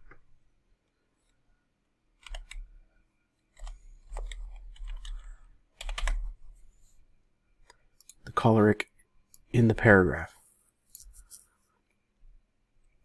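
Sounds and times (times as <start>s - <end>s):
computer keyboard typing: 2.2s - 2.7s, 3.5s - 6.4s.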